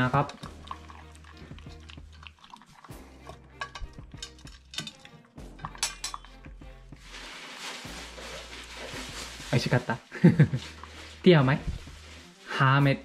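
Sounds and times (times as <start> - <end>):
puppy chewing: 0.2 - 5.2
food clinking against metal bowl: 3.2 - 6.3.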